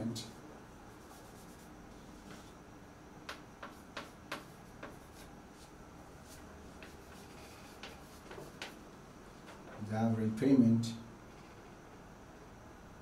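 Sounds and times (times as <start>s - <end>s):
low room hiss: 0.0s - 13.0s
chalk clicking on a blackboard: 3.3s - 5.7s, 6.3s - 8.8s.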